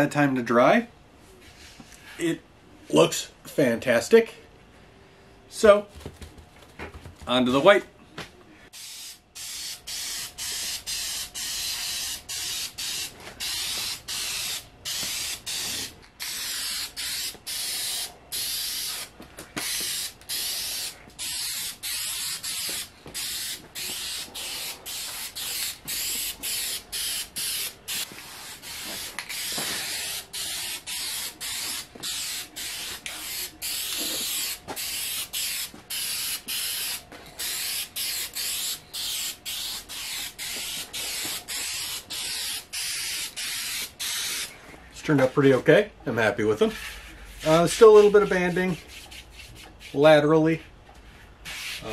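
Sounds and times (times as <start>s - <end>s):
spray paint can hissing: 8.8s - 44.5s.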